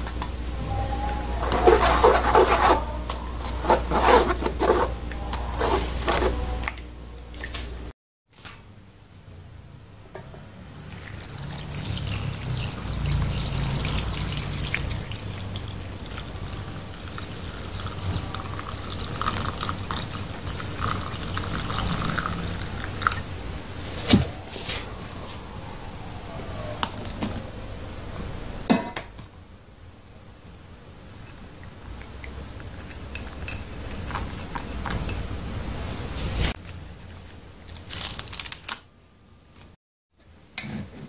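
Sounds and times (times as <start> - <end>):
liquid pouring and splashing: 10.8 - 23.3.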